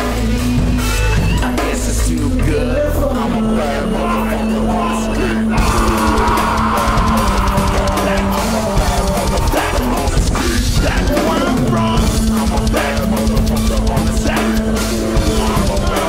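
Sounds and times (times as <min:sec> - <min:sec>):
heavy metal music: 0:00.0 - 0:16.0
drum kit beat: 0:05.6 - 0:16.0.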